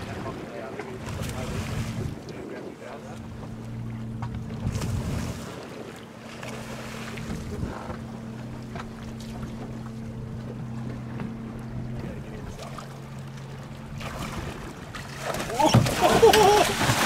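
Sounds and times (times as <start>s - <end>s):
wind on microphone: 0.0s - 6.0s, 7.1s - 8.1s
boat engine humming: 0.0s - 17.0s
water splashing: 0.0s - 17.0s.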